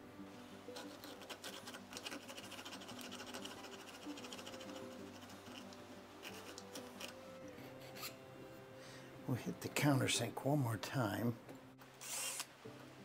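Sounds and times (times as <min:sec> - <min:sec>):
soft background music: 0:00.0 - 0:13.0
hand file rasping on metal: 0:07.6 - 0:08.2.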